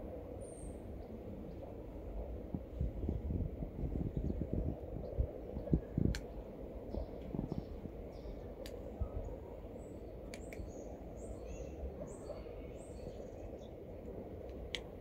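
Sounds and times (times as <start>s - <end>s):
low outdoor background noise: 0.0s - 15.0s
small birds chirping: 3.9s - 14.1s.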